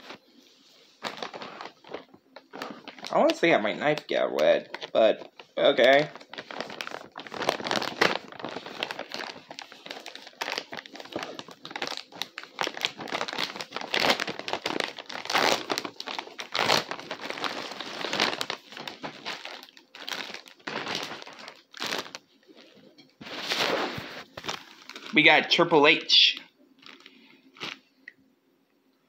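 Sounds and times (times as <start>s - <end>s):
plastic packaging crinkling: 0.8s - 28.0s.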